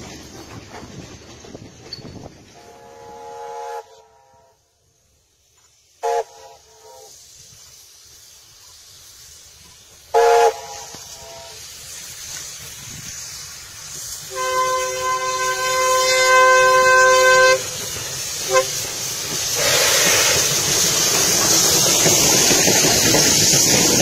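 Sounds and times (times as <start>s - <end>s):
steam engine hissing: 0.0s - 24.0s
steam locomotive whistle: 2.6s - 4.7s, 6.0s - 7.2s, 10.1s - 11.7s, 14.3s - 19.0s.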